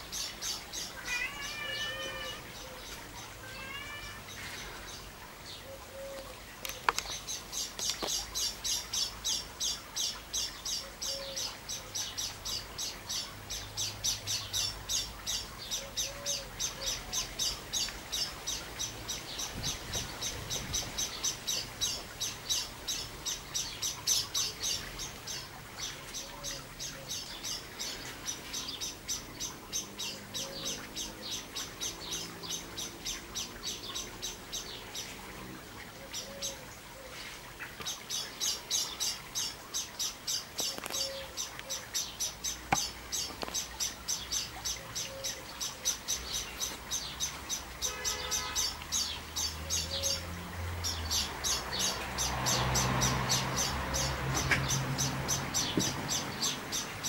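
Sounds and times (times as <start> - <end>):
small bird chirping: 35.8 - 50.2.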